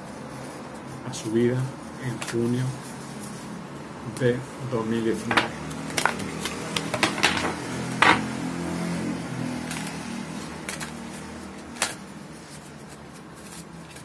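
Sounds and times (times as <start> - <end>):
cards shuffling: 5.1 - 8.3, 9.6 - 14.0
cards snapping together: 5.6 - 7.4, 10.6 - 12.0.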